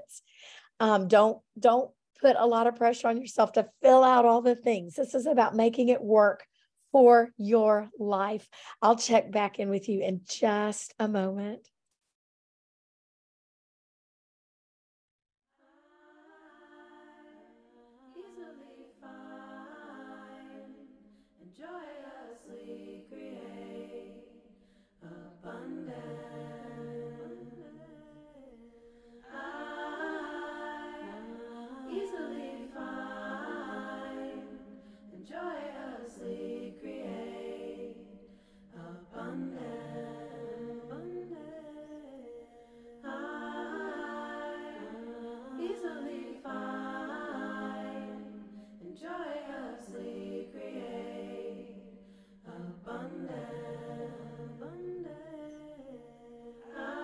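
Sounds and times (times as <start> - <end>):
a cappella voices singing: 0.0 - 0.2, 15.7 - 57.0.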